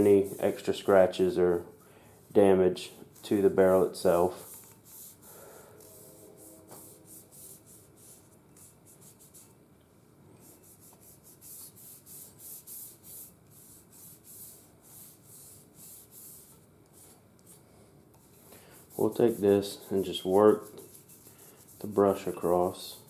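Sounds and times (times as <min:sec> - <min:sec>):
brush scrubbing metal: 0:00.0 - 0:01.3, 0:18.7 - 0:23.0.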